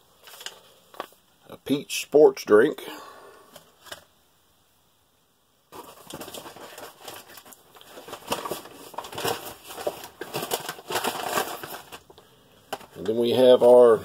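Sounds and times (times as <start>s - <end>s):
packaging crinkling and rustling: 0.2s - 1.2s, 5.7s - 13.9s.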